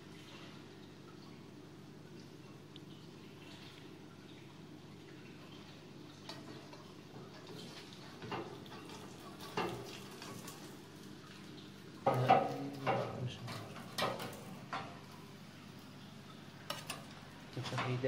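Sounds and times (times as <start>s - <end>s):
food frying in oil crackling: 0.0s - 18.0s
metal clatter and knocks: 12.1s - 15.0s.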